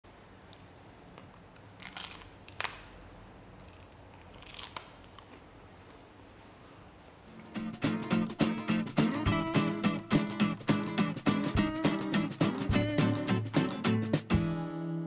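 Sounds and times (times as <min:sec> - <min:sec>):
crunchy dried pepper being chewed: 0:03.6 - 0:05.5.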